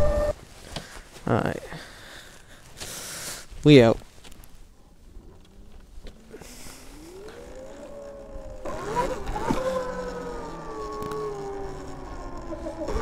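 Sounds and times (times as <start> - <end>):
electric motorbike motor whining: 0.0 - 0.4, 5.3 - 13.0
wind noise: 0.0 - 0.4.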